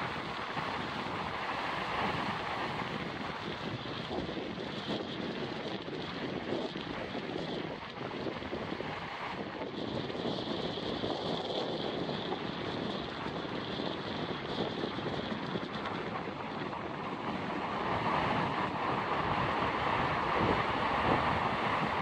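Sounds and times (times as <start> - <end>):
surf breaking on beach: 0.0 - 4.3, 15.0 - 22.0
wind blowing across microphone: 0.0 - 22.0.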